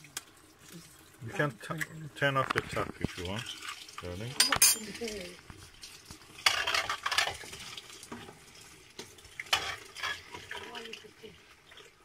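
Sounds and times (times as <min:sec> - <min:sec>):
wooden spatula scraping pan: 0:06.4 - 0:08.4, 0:09.5 - 0:10.7.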